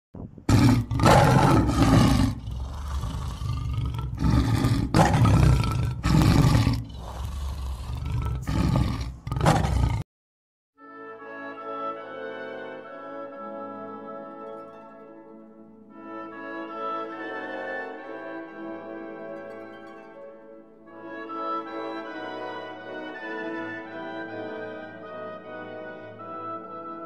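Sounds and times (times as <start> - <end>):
big cat roaring: 0.5 - 10.1
orchestral music: 10.8 - 27.0.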